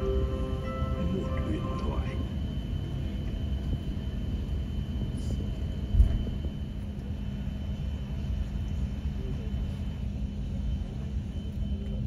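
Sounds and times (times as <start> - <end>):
aircraft cabin rumble and hum: 0.0 - 12.0.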